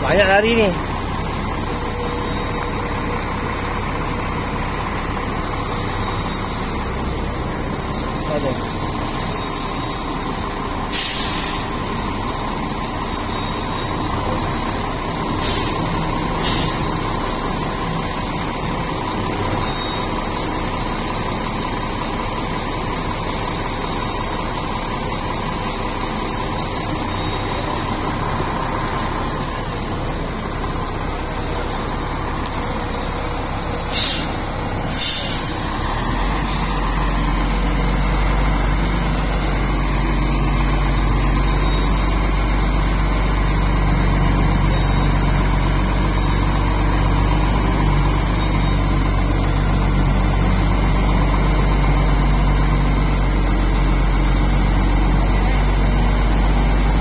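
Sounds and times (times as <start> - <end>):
heavy diesel engine running: 0.0 - 57.0
air hissing: 10.9 - 11.8, 15.4 - 17.0, 33.8 - 36.8.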